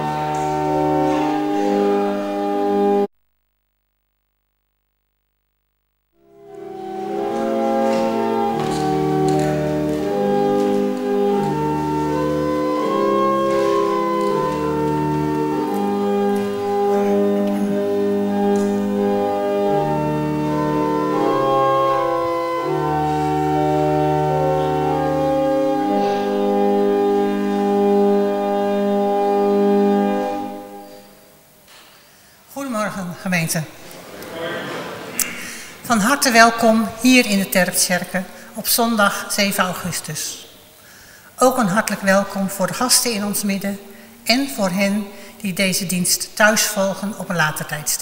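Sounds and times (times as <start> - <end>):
church organ playing chords: 0.0 - 3.1, 5.8 - 31.5.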